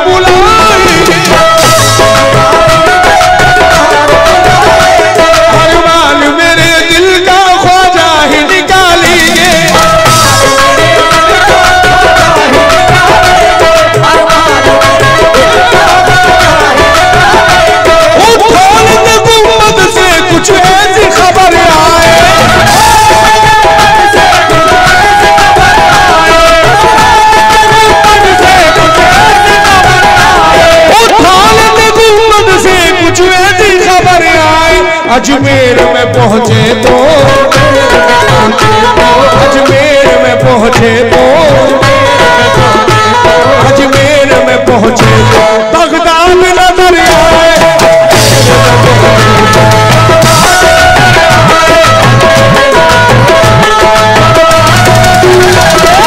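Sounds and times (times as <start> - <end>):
hand drum beat: 0.0 - 46.0, 46.8 - 56.0
harmonium: 0.0 - 56.0
person singing: 0.0 - 56.0.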